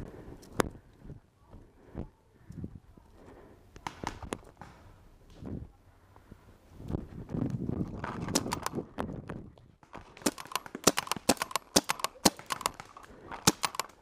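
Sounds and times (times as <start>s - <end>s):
paintball markers firing: 8.2s - 8.8s, 10.0s - 14.0s.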